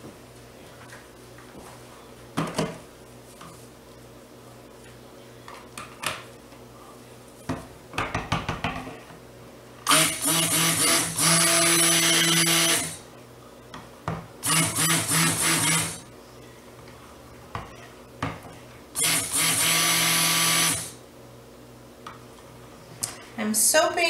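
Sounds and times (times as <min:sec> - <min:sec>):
stick blender running: 0:09.8 - 0:13.0, 0:14.4 - 0:16.1, 0:19.0 - 0:21.0.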